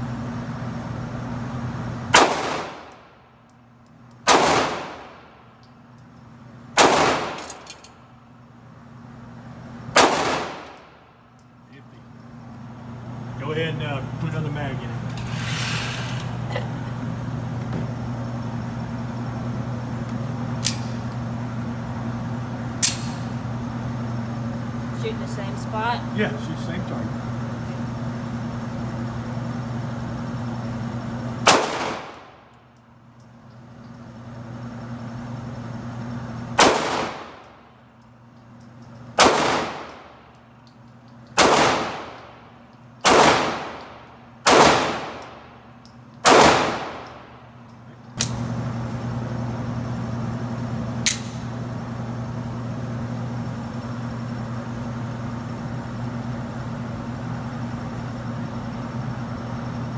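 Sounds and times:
handgun shots: 2.1s - 3.0s, 4.2s - 5.2s, 6.8s - 7.9s, 9.9s - 10.9s, 22.8s - 23.3s, 31.4s - 32.3s, 36.6s - 37.5s, 39.2s - 40.1s, 41.4s - 42.3s, 43.0s - 45.4s, 46.2s - 47.2s, 51.0s - 51.4s
sharp click: 20.6s - 21.0s, 22.8s - 23.2s, 48.1s - 48.4s, 51.0s - 51.4s.

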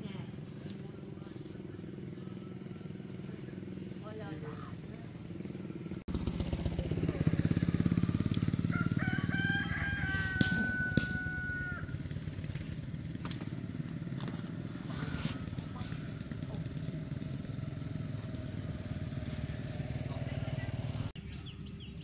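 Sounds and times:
motorbike engine running: 0.0s - 22.0s
rooster crowing: 8.2s - 12.1s.

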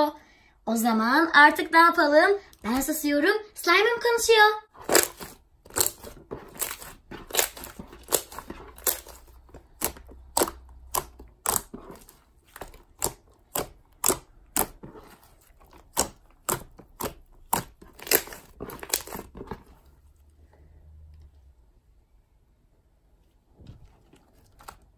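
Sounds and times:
clay slime crunchy pops and clicks: 7.3s - 19.3s.

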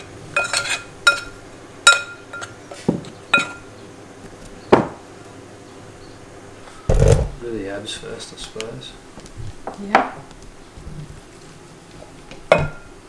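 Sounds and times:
metal spoon clinking ceramic bowl: 0.4s - 2.5s, 3.3s - 3.6s.

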